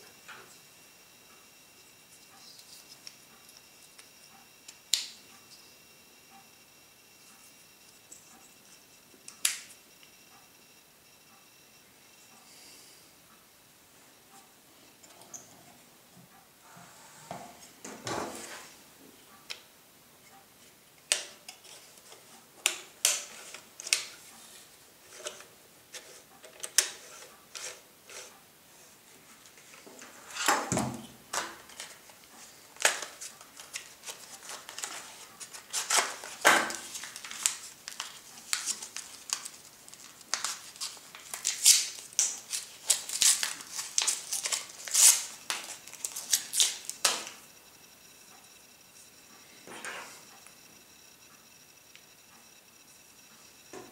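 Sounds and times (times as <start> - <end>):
foil wrapper crinkling and tearing: 32.8 - 47.2.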